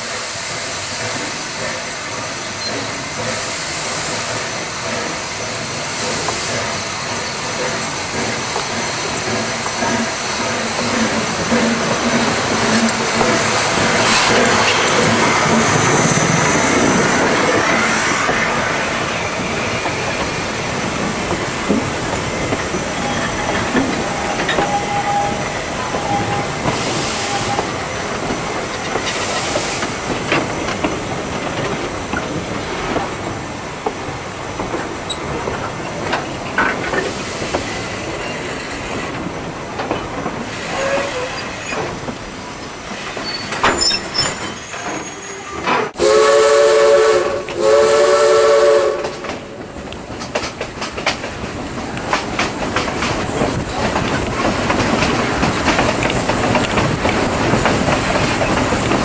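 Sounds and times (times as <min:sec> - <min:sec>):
steam locomotive rumbling past: 0:00.0 - 0:43.6, 0:44.8 - 0:59.0
train wheels clicking over rail joints: 0:00.0 - 0:59.0
wheel squeal: 0:23.0 - 0:27.7, 0:43.2 - 0:45.8.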